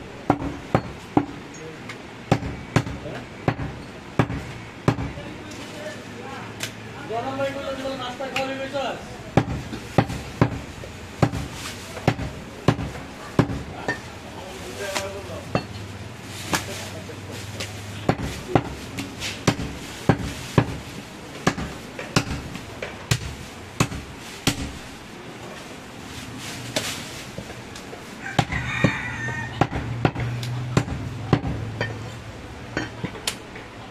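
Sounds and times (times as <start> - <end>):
cleaver chopping meat and bone: 2.3 - 5.2, 9.4 - 13.7, 18.0 - 20.8, 21.4 - 24.8, 28.4 - 31.7.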